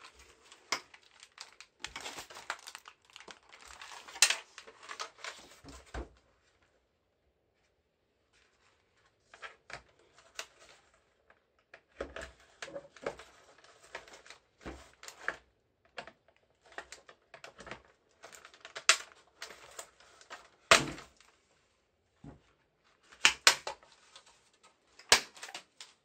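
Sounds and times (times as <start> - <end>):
plastic keyboard parts clicking: 15.1 - 21.2, 23.1 - 23.9, 24.9 - 26.0.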